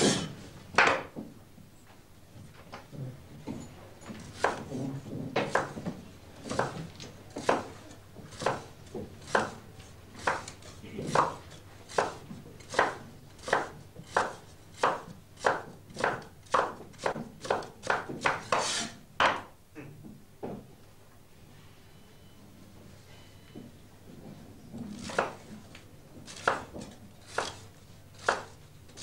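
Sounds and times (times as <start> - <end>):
knives chopping on wooden boards: 0.1 - 1.2, 4.2 - 4.7, 5.4 - 9.6, 10.2 - 19.5, 25.0 - 25.5, 26.2 - 29.0.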